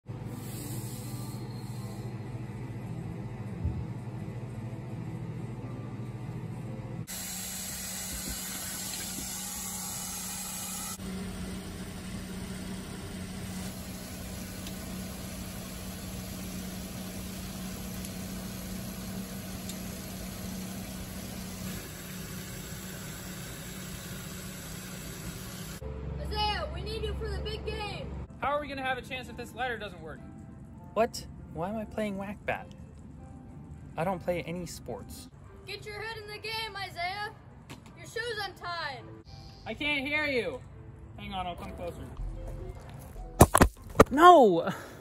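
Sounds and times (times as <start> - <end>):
shower water running: 13.4 - 25.8.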